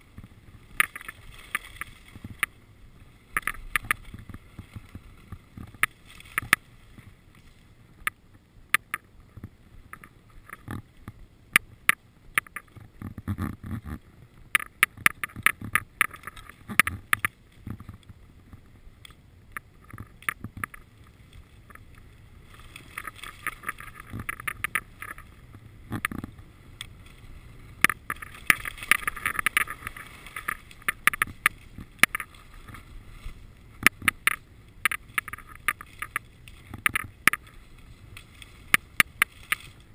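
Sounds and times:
skis scraping on snow: 0:00.0 - 0:08.0, 0:20.7 - 0:39.9
sharp clicks and knocks: 0:00.8 - 0:02.5, 0:03.3 - 0:06.6, 0:08.0 - 0:18.1, 0:19.0 - 0:20.9, 0:22.9 - 0:25.3, 0:25.9 - 0:26.9, 0:27.8 - 0:32.8, 0:33.8 - 0:37.6.

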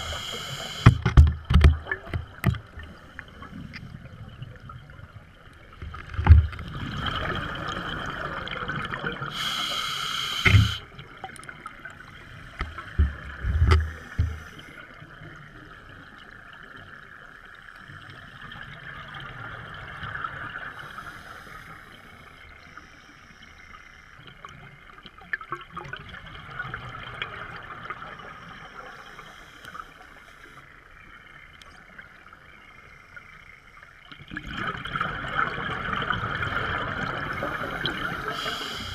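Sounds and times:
diver inhaling through regulator: 0:00.0 - 0:01.1, 0:09.3 - 0:10.8, 0:37.4 - 0:38.9
steady underwater hiss: 0:00.0 - 0:02.0, 0:02.6 - 0:04.4, 0:05.0 - 0:25.0, 0:26.2 - 0:34.1, 0:35.2 - 0:38.9.

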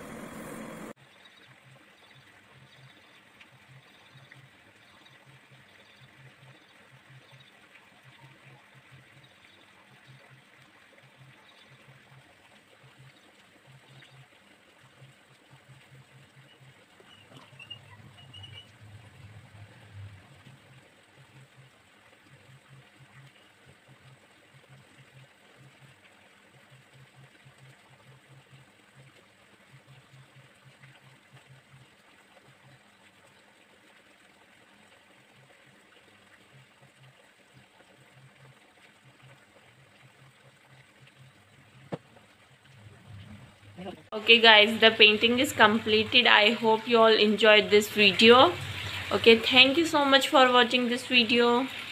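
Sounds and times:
low hum: 0:00.0 - 0:01.0, 0:15.6 - 0:21.8, 0:39.9 - 0:51.9
faint high chirps: 0:16.4 - 0:18.8.

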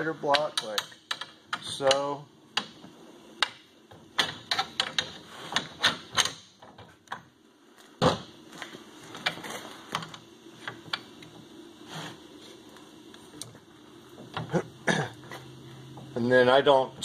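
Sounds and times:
metallic clicks and clanks: 0:00.2 - 0:02.8, 0:03.4 - 0:07.2.

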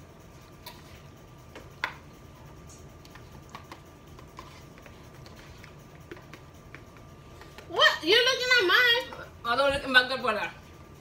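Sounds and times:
forks scraping in noodle cups: 0:02.7 - 0:07.8.

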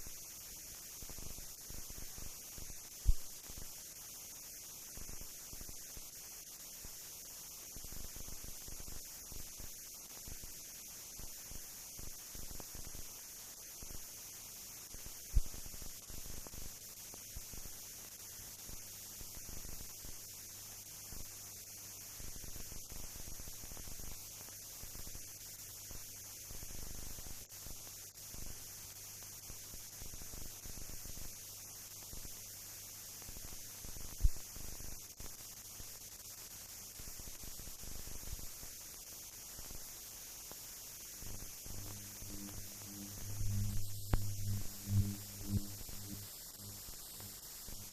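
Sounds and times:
film soundtrack hiss: 0:00.0 - 0:47.9
faint low hum: 0:39.6 - 0:47.9.

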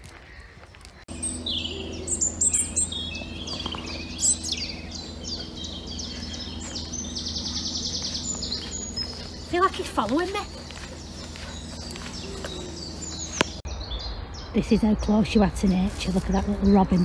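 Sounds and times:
birds chirping and whistling: 0:00.0 - 0:17.0
steady low hum: 0:00.9 - 0:13.6
bird trilling: 0:01.1 - 0:14.1.

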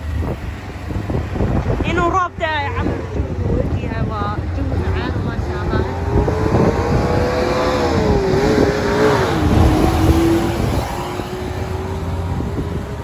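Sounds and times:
minibus passing close: 0:00.0 - 0:13.0
road rumble: 0:00.0 - 0:13.0
vehicle engine hum: 0:00.0 - 0:13.0.

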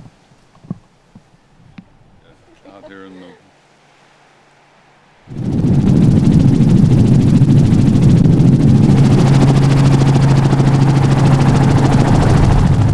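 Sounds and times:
steady low hum: 0:00.0 - 0:12.9
helicopter rotor beating: 0:05.2 - 0:12.9.

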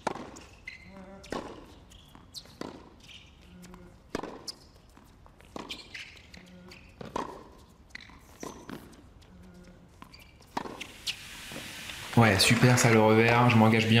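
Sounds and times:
tennis ball struck by rackets: 0:00.0 - 0:00.5, 0:01.2 - 0:01.7, 0:02.5 - 0:03.0, 0:04.1 - 0:04.5, 0:07.0 - 0:07.5, 0:10.5 - 0:11.7
tennis ball bouncing: 0:00.0 - 0:03.0, 0:04.1 - 0:09.1, 0:09.9 - 0:11.7.

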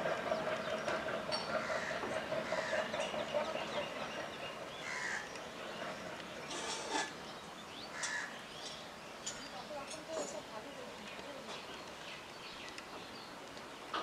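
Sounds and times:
passenger train running: 0:00.0 - 0:14.0
crows cawing: 0:01.6 - 0:02.9, 0:04.8 - 0:05.3, 0:07.9 - 0:08.4.

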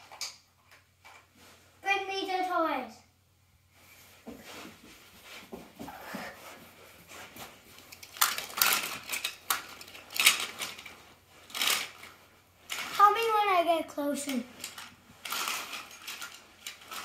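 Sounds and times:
toy cars clattering together: 0:00.0 - 0:01.3, 0:07.8 - 0:13.2, 0:14.2 - 0:17.0.

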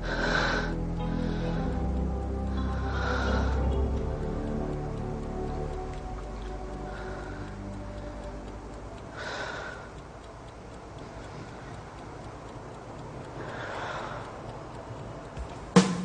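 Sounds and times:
girl breathing heavily: 0:00.0 - 0:04.0, 0:06.8 - 0:08.4, 0:09.1 - 0:10.0, 0:13.4 - 0:14.4
clock ticking: 0:00.0 - 0:16.0.

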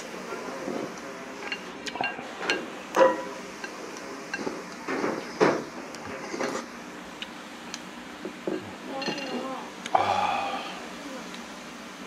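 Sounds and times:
person gulping broth: 0:09.9 - 0:11.0.

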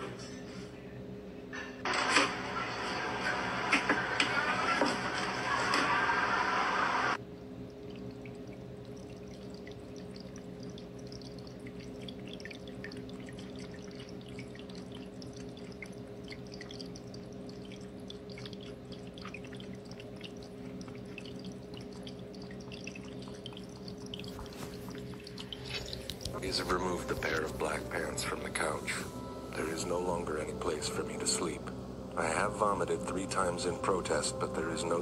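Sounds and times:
low hum: 0:07.1 - 0:35.0
cat lapping water: 0:07.6 - 0:28.8.

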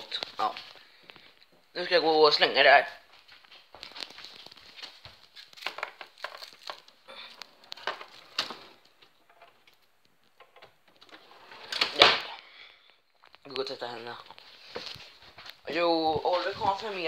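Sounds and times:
plastic crumpling and rustling: 0:03.2 - 0:09.8, 0:12.8 - 0:17.0.

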